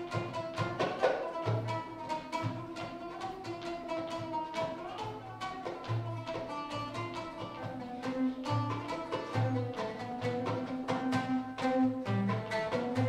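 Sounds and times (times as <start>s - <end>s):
frame drum strokes and taps: 5.6s - 13.0s.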